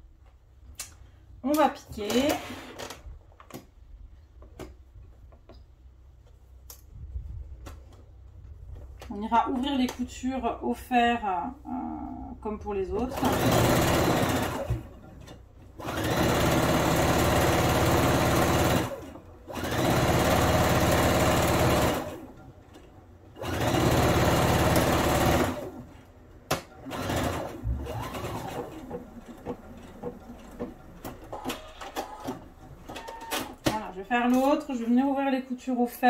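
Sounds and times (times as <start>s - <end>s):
sewing machine stitching: 13.0s - 22.4s, 23.3s - 25.8s, 26.8s - 33.8s.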